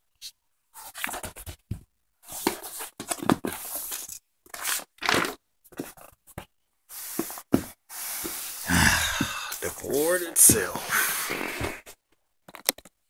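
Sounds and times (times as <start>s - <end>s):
cardboard rustling and scraping: 0.7s - 6.4s.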